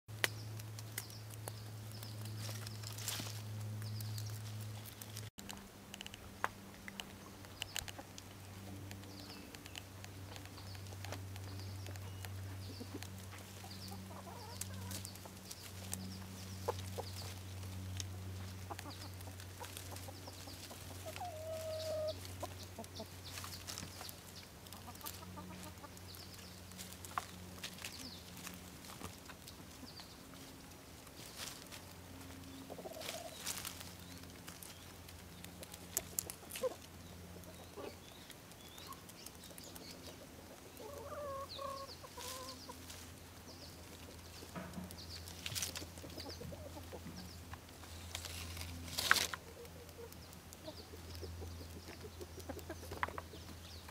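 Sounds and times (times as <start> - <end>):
hens clucking: 6.4 - 53.9
clicks and rustles: 42.2 - 53.6.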